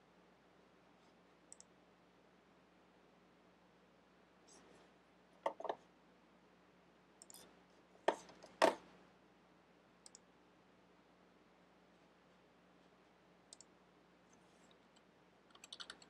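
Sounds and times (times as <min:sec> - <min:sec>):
faint low hum: 0:00.0 - 0:16.0
computer mouse buttons clicking: 0:07.2 - 0:07.4, 0:10.0 - 0:10.2, 0:13.5 - 0:13.7, 0:14.9 - 0:16.0.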